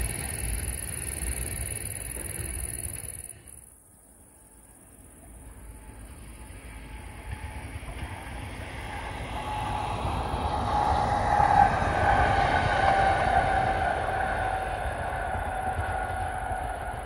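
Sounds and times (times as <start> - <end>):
diesel locomotive engine rumble: 0.0 - 17.0
locomotive whine: 0.0 - 17.0.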